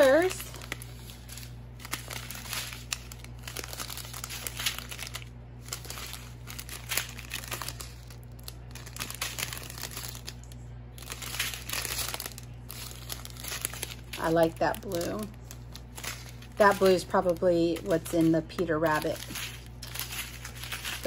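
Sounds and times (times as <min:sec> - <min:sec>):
plastic bags crinkling: 0:00.0 - 0:21.0.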